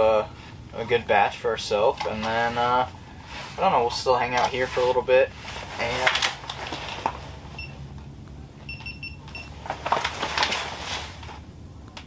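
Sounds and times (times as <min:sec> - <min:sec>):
low steady hum: 0:00.0 - 0:12.0
winter clothing rustling: 0:02.2 - 0:07.7, 0:09.6 - 0:11.4
short electronic beeps: 0:07.6 - 0:07.8, 0:08.7 - 0:09.6.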